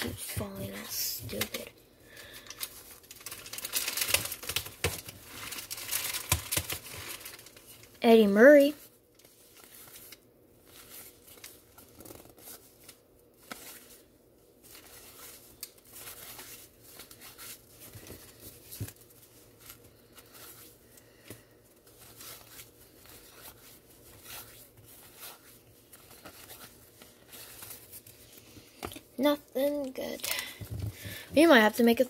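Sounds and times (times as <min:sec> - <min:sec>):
cardboard cards rustling and clicking: 0:00.0 - 0:01.7, 0:02.4 - 0:07.7.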